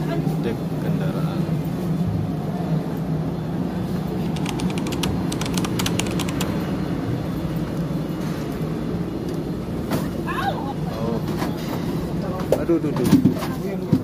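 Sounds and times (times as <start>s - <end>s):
ferry machinery hum: 0.0s - 12.5s
rapid light clicks: 4.3s - 6.6s.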